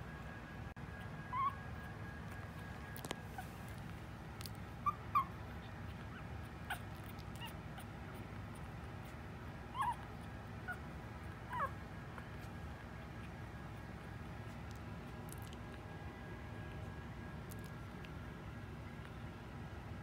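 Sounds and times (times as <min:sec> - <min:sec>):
puppies squeaking: 0:00.9 - 0:12.6.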